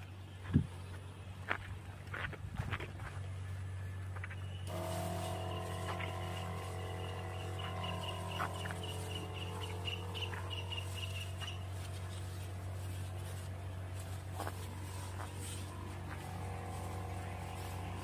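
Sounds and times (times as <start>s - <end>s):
sprayer motor humming: 4.6s - 18.0s
spray hissing: 4.7s - 18.0s
high rapid chirping: 5.3s - 13.4s.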